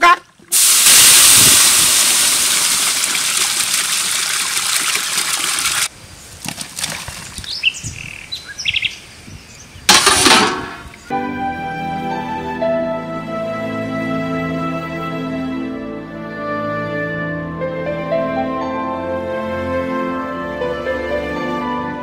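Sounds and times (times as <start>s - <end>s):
water pouring: 0.3s - 5.9s
short rush of noise: 0.5s - 2.7s
birds chirping: 7.1s - 9.9s.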